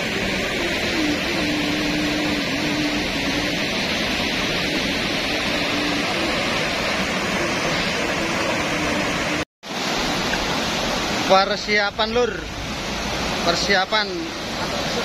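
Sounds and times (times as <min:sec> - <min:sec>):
faint hum: 0:00.0 - 0:09.4
turbulent water rushing: 0:00.0 - 0:15.0.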